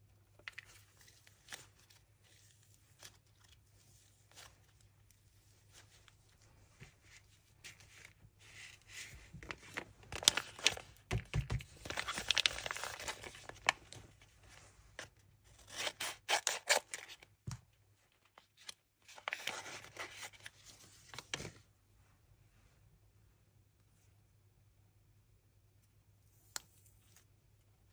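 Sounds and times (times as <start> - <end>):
paper rustling and crinkling: 0.3 - 17.3, 18.2 - 21.6
paper tearing: 15.6 - 17.1.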